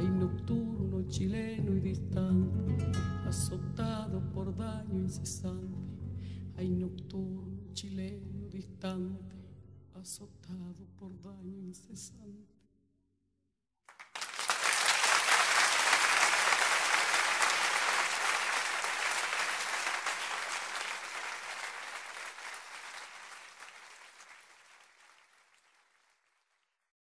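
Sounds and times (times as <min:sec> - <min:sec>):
crowd applauding: 0:13.9 - 0:26.8.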